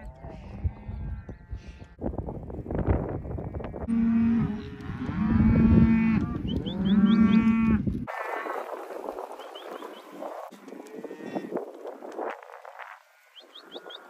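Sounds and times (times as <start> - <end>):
cattle mooing: 3.8 - 7.8.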